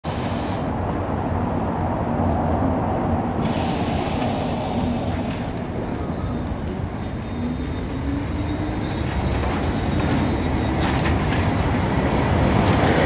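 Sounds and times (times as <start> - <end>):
tram rumbling: 0.0 - 13.0
air hissing: 3.4 - 6.9.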